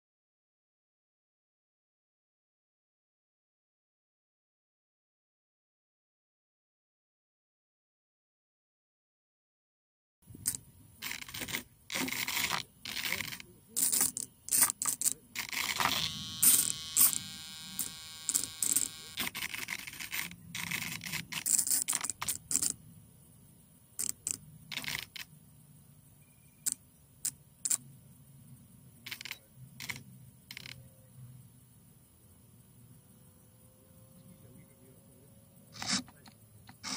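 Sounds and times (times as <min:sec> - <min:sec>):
steady multi-tone whine: 0:10.3 - 0:26.8, 0:27.6 - 0:36.9
clicks and scrapes of handling: 0:10.5 - 0:17.2, 0:35.8 - 0:36.9.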